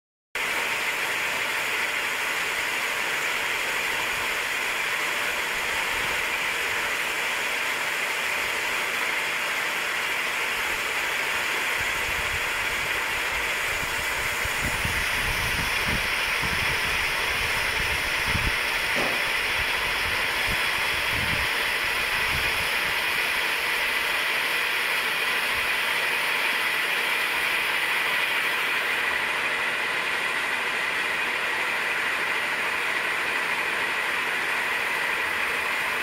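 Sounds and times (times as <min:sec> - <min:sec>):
low buffeting rumble: 0:11.7 - 0:23.0.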